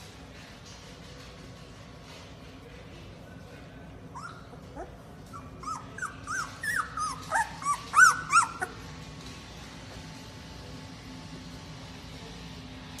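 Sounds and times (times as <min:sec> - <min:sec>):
puppy whimpering: 0:04.1 - 0:08.9.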